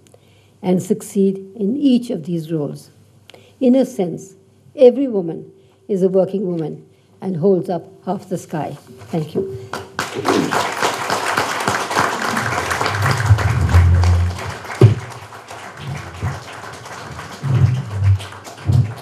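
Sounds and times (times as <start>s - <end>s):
audience applauding: 9.7s - 19.0s
low thumps: 12.3s - 15.1s, 17.4s - 19.0s.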